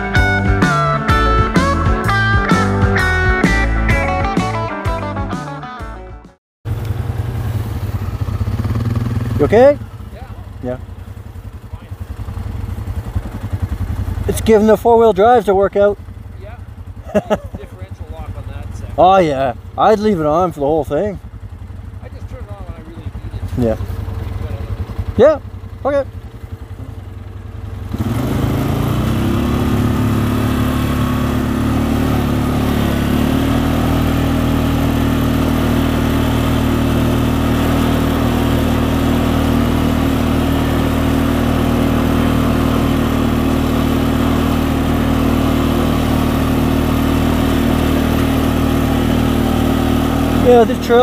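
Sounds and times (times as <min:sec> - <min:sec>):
atv engine under load: 0:06.7 - 0:51.0.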